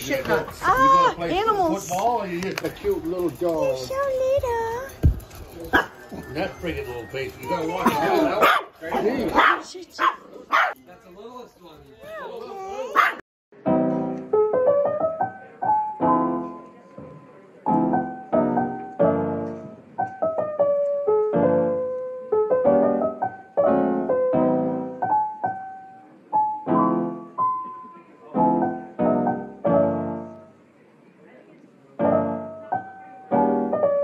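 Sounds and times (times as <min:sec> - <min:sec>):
slow piano chords: 0:13.6 - 0:30.8, 0:32.0 - 0:34.0.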